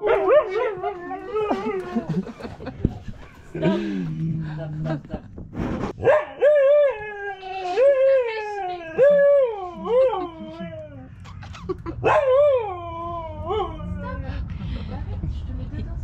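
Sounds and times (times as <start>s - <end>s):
dog howling calls: 6.4s - 14.1s.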